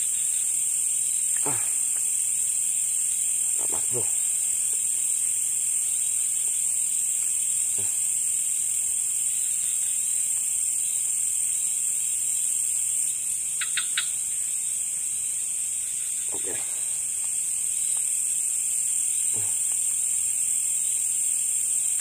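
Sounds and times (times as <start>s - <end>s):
night insects chorus: 0.0s - 22.0s.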